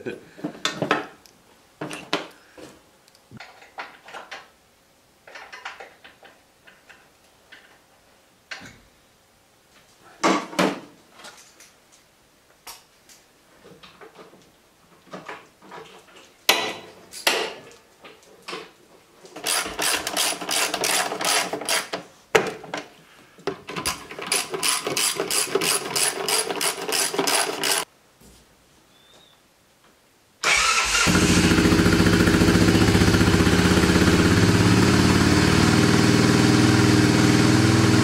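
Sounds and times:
tools knocking and clunking: 15.1 - 17.7
ratchet wrench clicking: 24.3 - 27.9.

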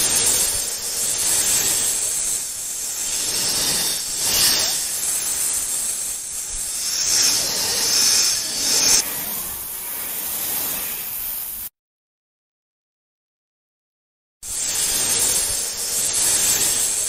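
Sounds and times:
snake hissing: 0.0 - 11.7, 14.5 - 17.0.

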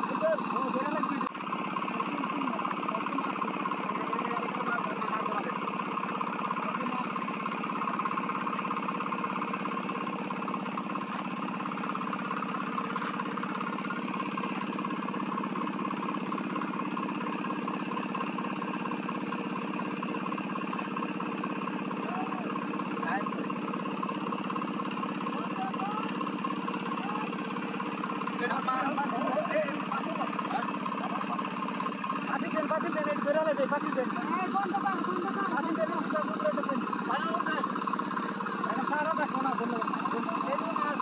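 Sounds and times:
engine humming: 0.0 - 41.0.

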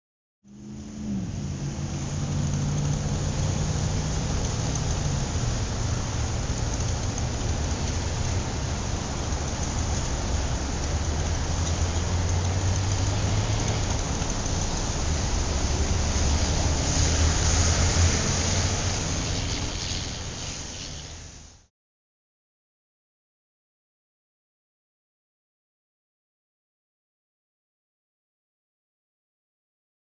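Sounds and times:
road traffic noise: 0.5 - 21.7.

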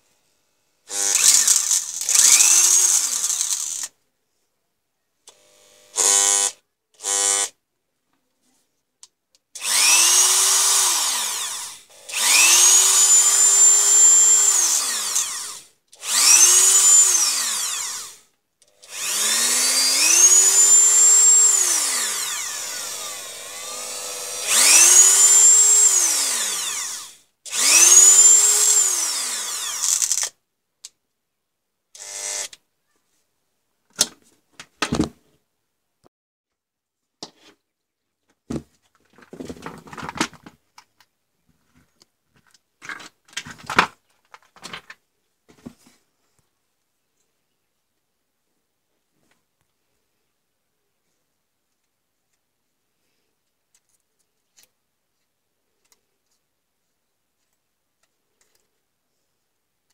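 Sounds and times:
rotary tool motor whine: 0.9 - 3.9, 9.6 - 30.3.

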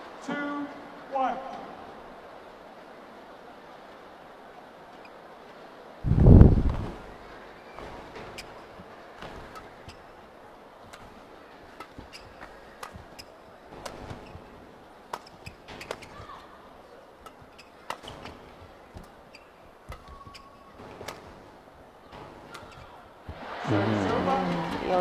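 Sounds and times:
faint arena murmur: 0.0 - 25.0
shoe squeaks on court: 7.6 - 10.2, 10.8 - 23.1
rackets striking shuttlecock: 7.8 - 10.2, 10.8 - 23.5.

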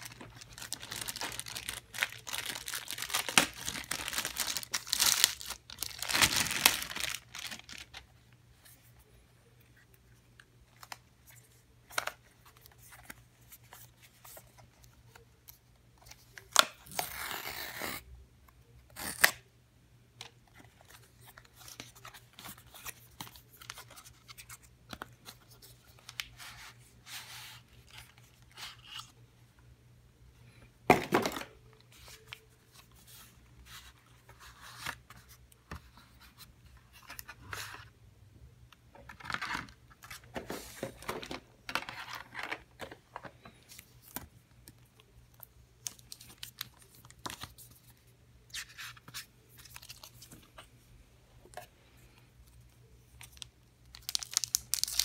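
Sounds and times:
cardboard packaging rustling: 0.0 - 8.1.

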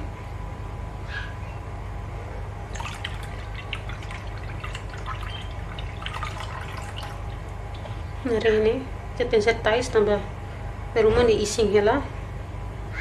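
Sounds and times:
liquid pouring into a saucepan: 2.7 - 8.0
small drips and splashes: 2.7 - 8.3.

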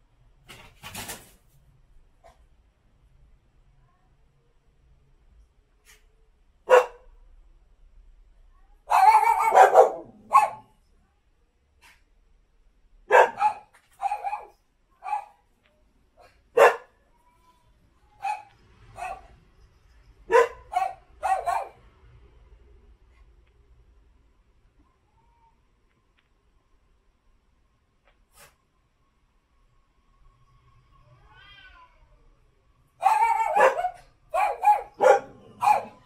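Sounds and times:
dog barking: 6.6 - 7.1, 8.9 - 10.8, 13.1 - 15.4, 16.2 - 17.0, 18.2 - 19.4, 20.3 - 21.8, 33.0 - 36.0.

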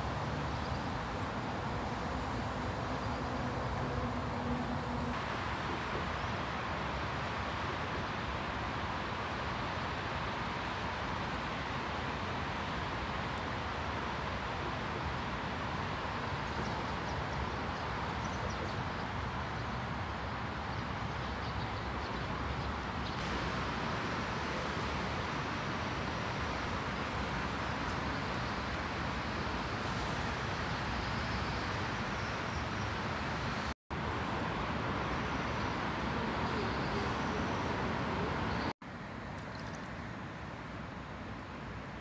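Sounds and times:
outdoor rushing hiss: 23.1 - 38.7.

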